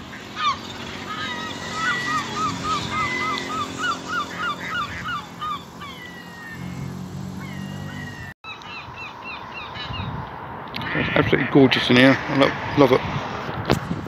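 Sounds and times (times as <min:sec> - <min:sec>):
gulls calling: 0:00.0 - 0:10.1.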